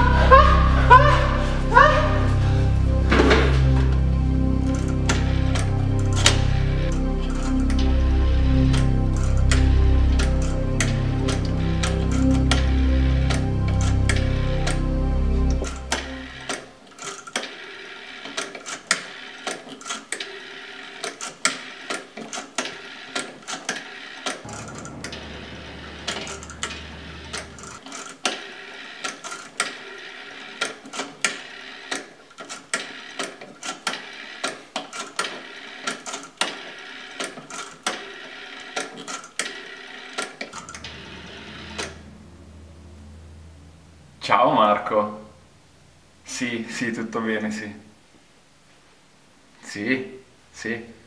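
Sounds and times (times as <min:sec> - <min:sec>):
low hum: 0:00.0 - 0:16.5, 0:24.5 - 0:28.1, 0:40.6 - 0:46.3.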